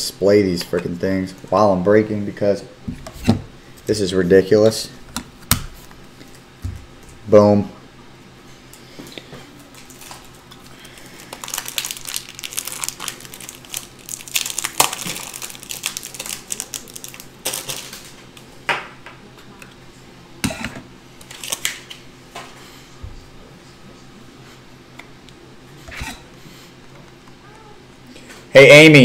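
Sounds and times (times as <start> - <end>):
packaging crinkling and rustling: 9.7 - 18.2, 21.2 - 22.0.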